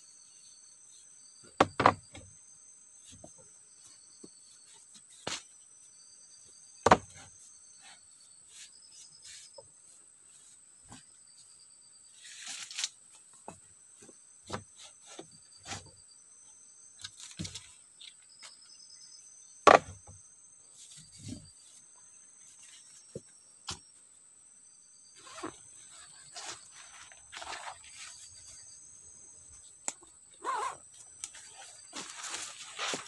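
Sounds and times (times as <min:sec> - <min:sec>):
insects chirring: 0:00.0 - 0:33.0
bamboo poles knocking together: 0:01.6 - 0:02.2, 0:06.8 - 0:07.2, 0:19.7 - 0:20.1.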